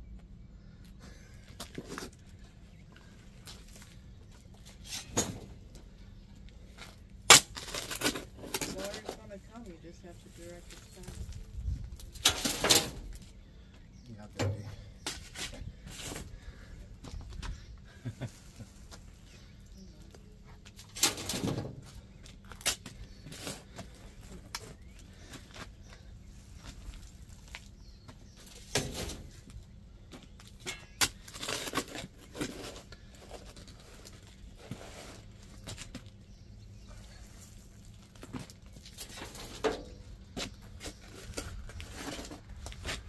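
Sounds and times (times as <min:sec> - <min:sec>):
shovel scraping into soil: 0:04.7 - 0:05.6, 0:28.6 - 0:29.4.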